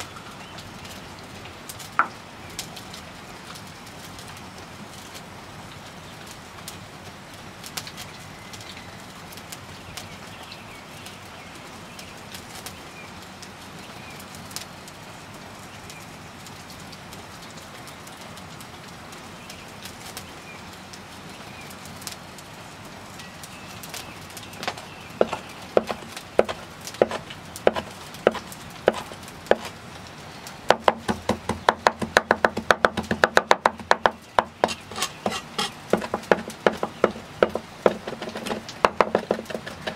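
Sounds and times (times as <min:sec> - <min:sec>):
wood fire crackling: 0:00.0 - 0:39.9
knife chopping on wooden board: 0:25.2 - 0:29.7, 0:30.7 - 0:39.9.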